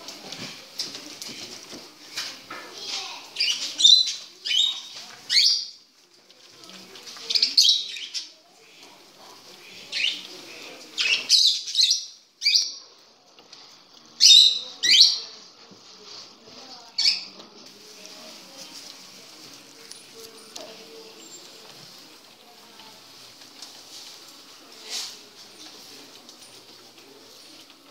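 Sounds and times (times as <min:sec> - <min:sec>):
parrots chattering calls: 0:03.3 - 0:05.8, 0:14.2 - 0:15.3, 0:16.9 - 0:17.3.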